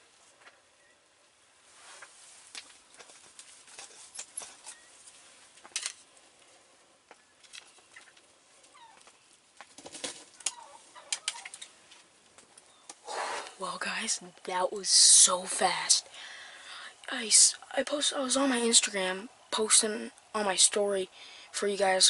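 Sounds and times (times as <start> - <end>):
rustling: 1.6 - 13.6
turkeys clucking: 7.8 - 9.1, 10.2 - 11.6.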